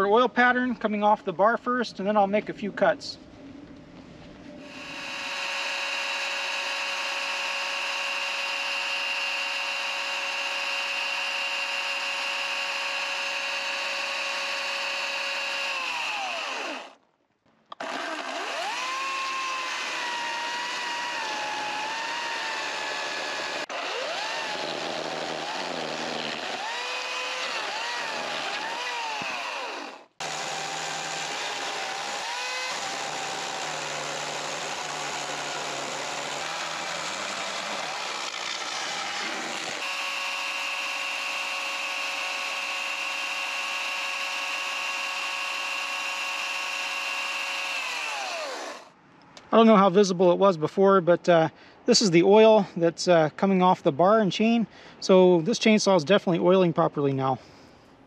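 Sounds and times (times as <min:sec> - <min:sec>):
chainsaw cutting wood: 0:04.6 - 0:17.0, 0:17.7 - 0:49.0
electric chainsaw whining: 0:04.6 - 0:17.0, 0:17.7 - 0:49.0.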